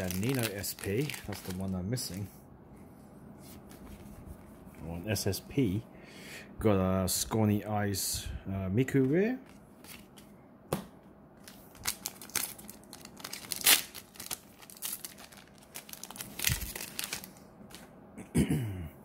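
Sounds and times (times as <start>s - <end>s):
foil wrapper crinkling and tearing: 0.0s - 1.8s, 11.4s - 17.8s.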